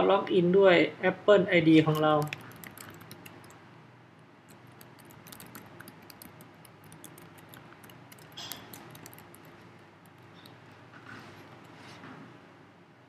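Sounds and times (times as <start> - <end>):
keyboard key clicks: 4.5 - 10.6.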